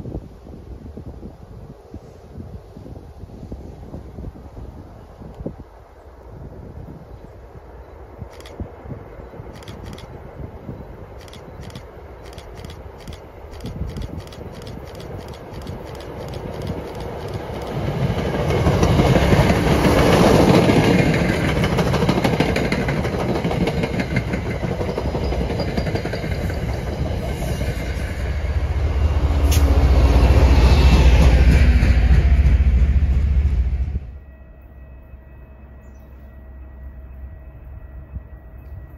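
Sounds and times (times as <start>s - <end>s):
train wheels clacking over rail joints: 11.2s - 27.8s.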